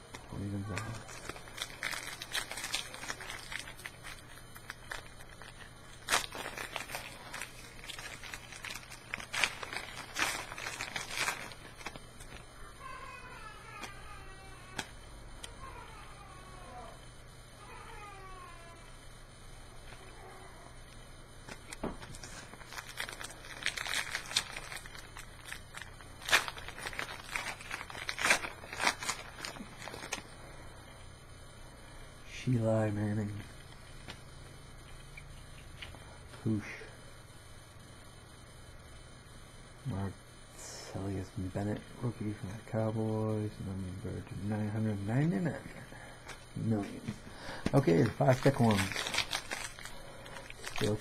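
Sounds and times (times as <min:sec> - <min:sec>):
foil wrapper crinkling: 0:00.1 - 0:15.6, 0:21.4 - 0:30.4, 0:46.2 - 0:51.0
cards being handled: 0:46.2 - 0:51.0.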